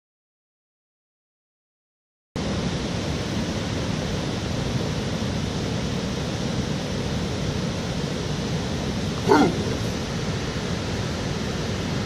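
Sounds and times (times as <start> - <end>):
steady rushing outdoor noise: 2.4 - 12.0.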